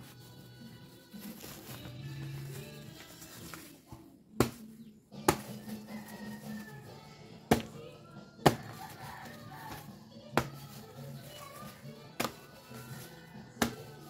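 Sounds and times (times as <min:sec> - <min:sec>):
background music: 0:00.0 - 0:14.0
knife chopping into fruit: 0:04.4 - 0:05.9, 0:07.4 - 0:07.8, 0:08.4 - 0:10.9, 0:12.2 - 0:13.0, 0:13.6 - 0:14.0.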